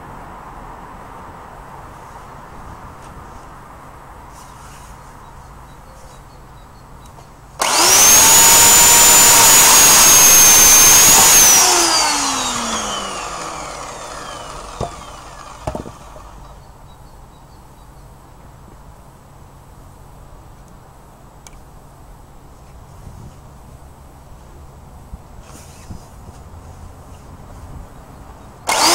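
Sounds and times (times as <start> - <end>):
electric chainsaw cutting log: 7.6 - 16.6, 28.7 - 28.9
knocks: 15.6 - 16.2.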